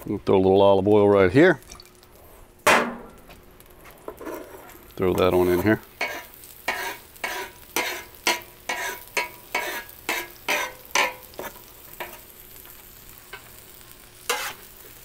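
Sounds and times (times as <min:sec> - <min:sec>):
vegetables sizzling in oil: 0:01.0 - 0:15.0
knife scraping on griddle: 0:04.1 - 0:12.4, 0:13.2 - 0:15.0.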